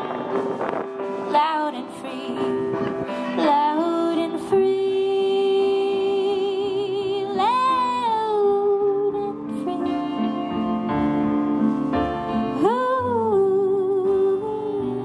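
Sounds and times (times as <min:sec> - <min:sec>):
live band playing: 0:00.0 - 0:04.8, 0:08.9 - 0:15.0
woman singing: 0:01.3 - 0:10.7, 0:12.5 - 0:15.0.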